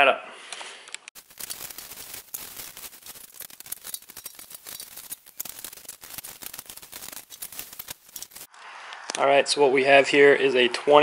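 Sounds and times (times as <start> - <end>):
plastic wrap and foam crinkling: 1.2 - 8.5.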